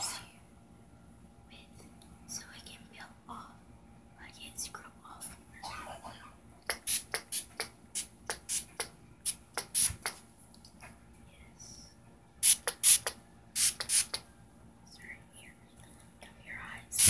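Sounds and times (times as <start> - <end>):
spray bottle hissing sprays: 6.7 - 10.2, 12.4 - 14.2.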